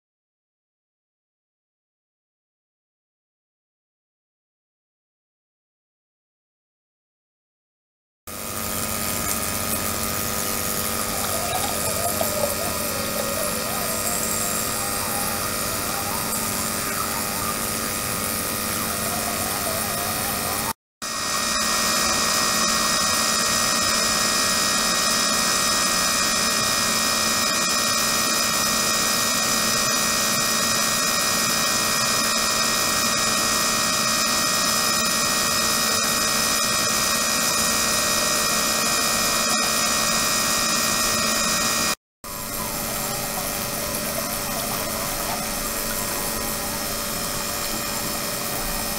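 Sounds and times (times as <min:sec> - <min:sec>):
small pump motor: 0:08.3 - 0:48.9
ultrasonic bath hissing and whining: 0:08.4 - 0:33.9, 0:42.3 - 0:48.9.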